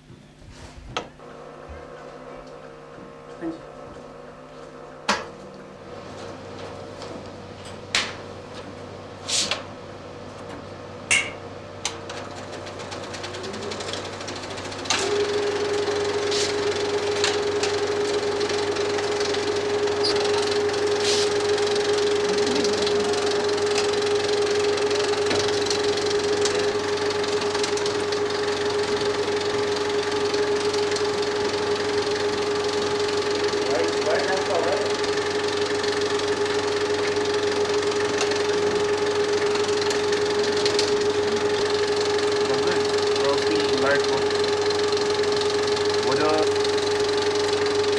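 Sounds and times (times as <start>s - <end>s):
film projector running with hum: 0.9s - 47.9s.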